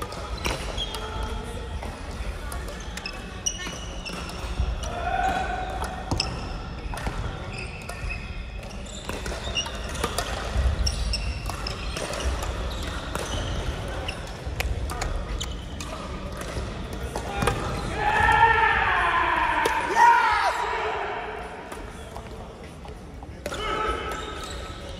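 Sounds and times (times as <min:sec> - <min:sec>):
sneaker squeaks on floor: 0:00.2 - 0:01.2, 0:02.5 - 0:14.4, 0:15.3 - 0:16.0, 0:23.5 - 0:24.9.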